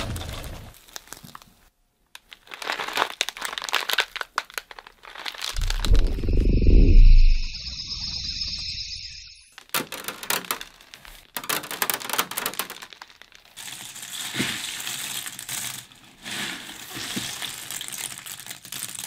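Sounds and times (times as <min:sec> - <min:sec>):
dried corn kernels spilling: 0:12.7 - 0:19.0.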